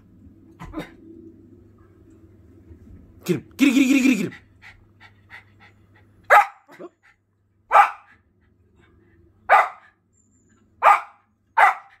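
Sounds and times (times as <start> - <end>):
dog barking: 6.3 - 6.9, 7.7 - 8.1, 9.5 - 10.0, 10.8 - 12.0.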